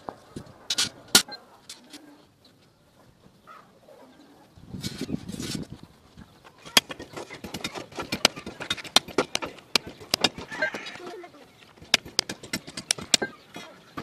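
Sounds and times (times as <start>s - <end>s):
rustling scrape: 4.7s - 5.8s.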